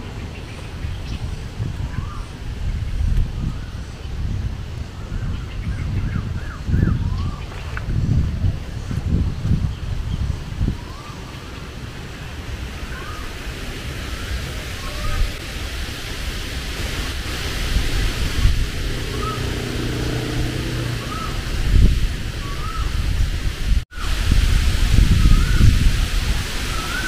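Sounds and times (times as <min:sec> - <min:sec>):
wind on microphone: 0:00.0 - 0:27.0
bird rising call: 0:01.9 - 0:02.4, 0:10.7 - 0:11.5, 0:12.8 - 0:13.4, 0:18.7 - 0:21.6, 0:22.4 - 0:23.0, 0:25.2 - 0:25.8, 0:26.6 - 0:27.0.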